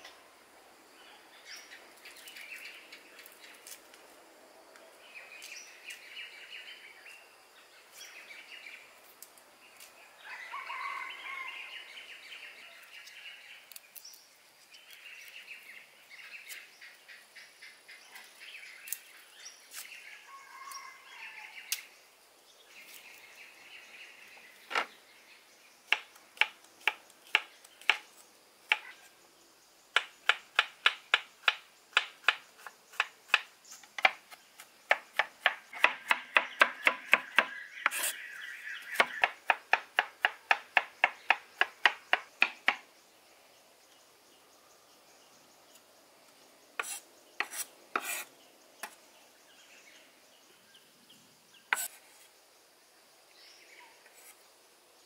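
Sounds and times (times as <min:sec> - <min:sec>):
knife chopping on wooden board: 0:34.9 - 0:38.1
birds chirping: 0:35.6 - 0:52.0.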